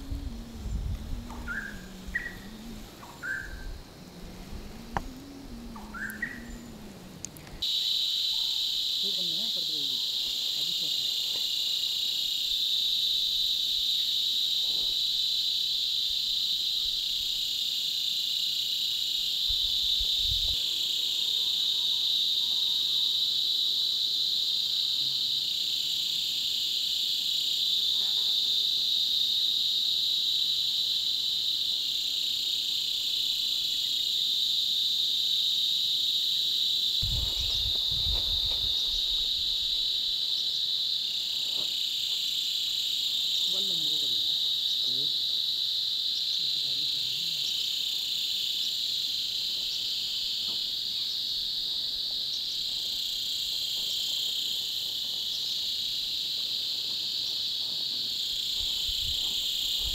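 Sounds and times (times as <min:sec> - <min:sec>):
low rumble: 0:00.0 - 0:07.6
insects shrilling: 0:00.0 - 0:59.9.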